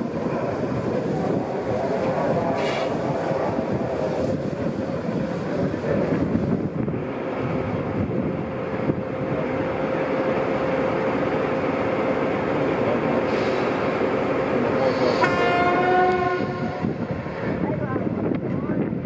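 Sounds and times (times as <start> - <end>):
diesel locomotive engine running: 0.0 - 19.0
locomotive horn held note: 15.1 - 17.0.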